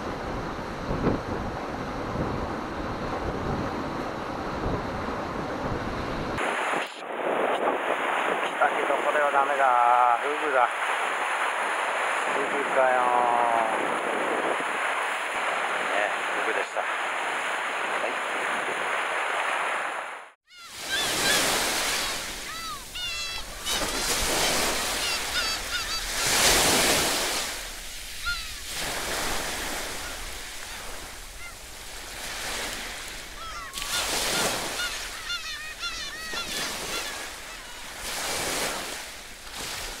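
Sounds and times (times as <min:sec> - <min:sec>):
sea surf on rocky shore: 0:00.0 - 0:40.0
birds calling: 0:20.5 - 0:39.3.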